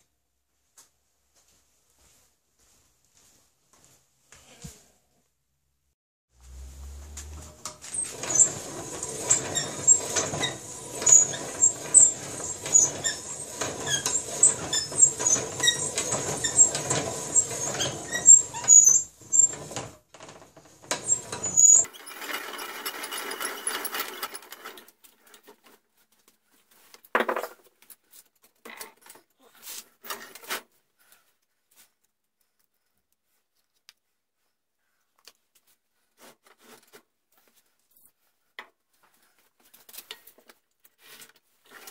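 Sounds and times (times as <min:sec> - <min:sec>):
metal scraping: 0:06.4 - 0:24.9
reamer squealing on metal: 0:07.9 - 0:19.6, 0:21.1 - 0:24.8.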